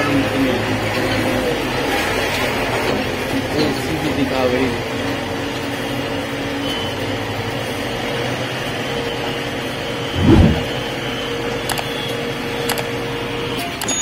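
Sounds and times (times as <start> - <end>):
steady whine: 10.0 - 10.8
low thud: 10.2 - 10.8.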